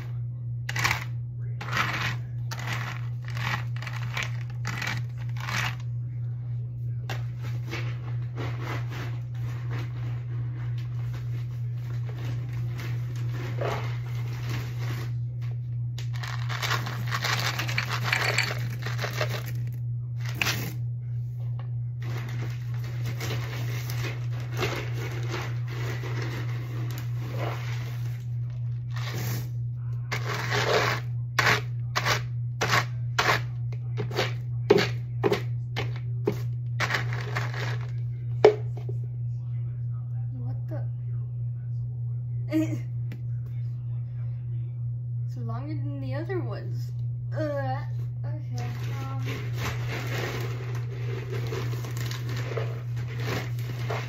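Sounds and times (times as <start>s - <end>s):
steady low hum: 0.0s - 54.0s
plastic bag rustling: 16.0s - 20.6s, 22.0s - 29.4s, 48.6s - 54.0s
pellets pouring and rattling: 16.1s - 20.4s, 48.7s - 54.0s.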